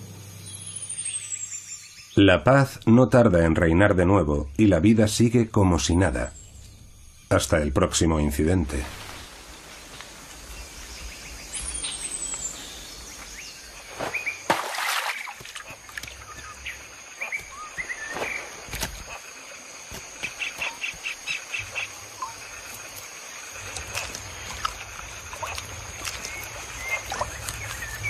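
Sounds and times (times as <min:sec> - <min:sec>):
bird chirps: 0:00.4 - 0:02.4, 0:10.4 - 0:14.5, 0:15.6 - 0:19.2, 0:26.0 - 0:28.0
falling bird whistle: 0:16.2 - 0:18.7.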